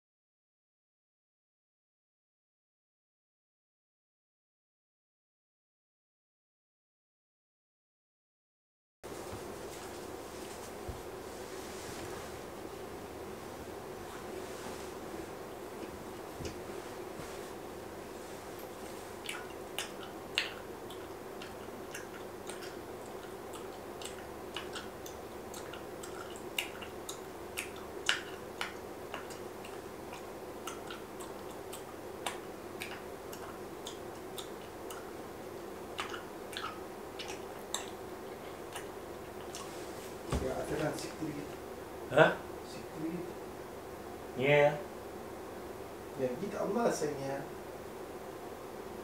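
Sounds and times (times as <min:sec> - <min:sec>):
steady low hum: 0:09.0 - 0:49.0
gum chewing smacks: 0:18.8 - 0:35.2, 0:35.9 - 0:39.7.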